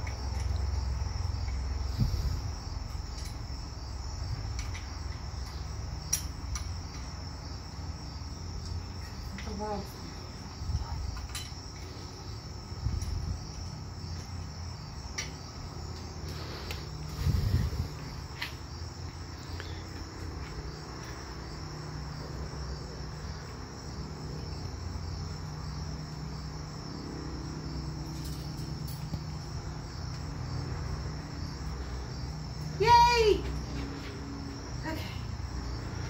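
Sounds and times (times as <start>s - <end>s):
crickets chirping: 0.0s - 36.0s.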